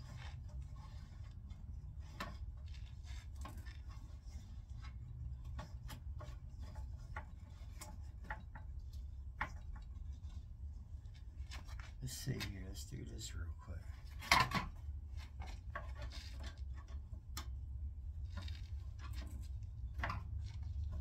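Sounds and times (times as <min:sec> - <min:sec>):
low steady hum: 0:00.0 - 0:21.0.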